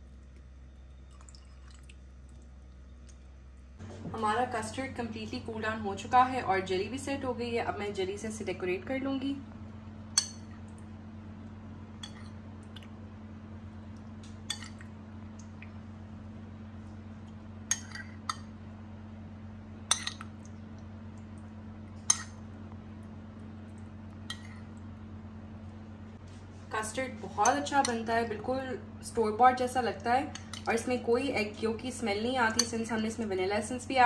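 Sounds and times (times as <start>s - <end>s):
low hum: 0.0s - 34.0s
metal spoon clinking bowl: 19.9s - 20.2s.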